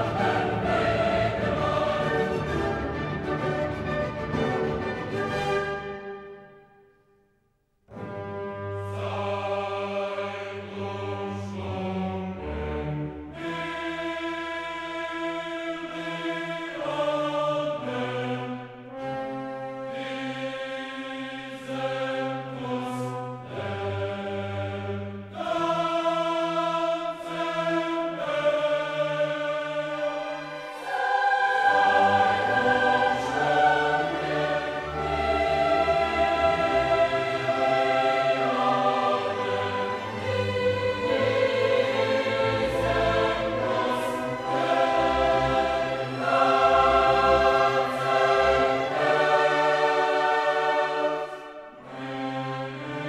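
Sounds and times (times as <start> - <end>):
choir singing held chords: 0.0 - 6.6, 7.9 - 53.0
deep fuller accompaniment: 0.0 - 6.8, 7.9 - 53.0.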